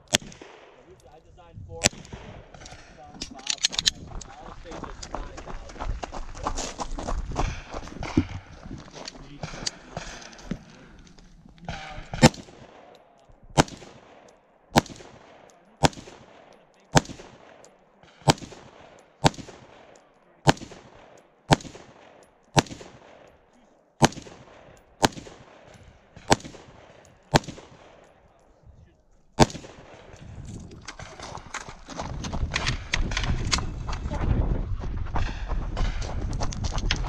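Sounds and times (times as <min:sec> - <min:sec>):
gunshots with echo: 0:09.4 - 0:10.6, 0:11.7 - 0:28.2, 0:29.4 - 0:30.2.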